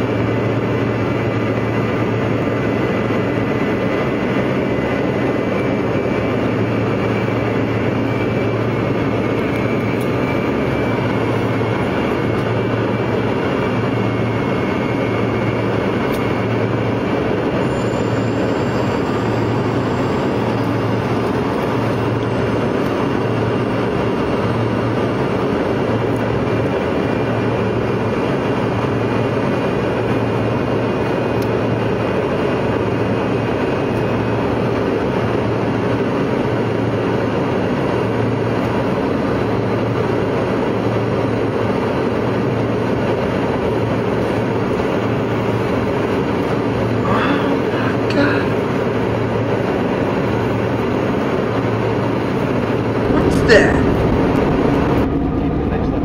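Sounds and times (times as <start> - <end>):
jet engine and airflow rumble: 0.0 - 56.0
low regular throb: 52.8 - 56.0.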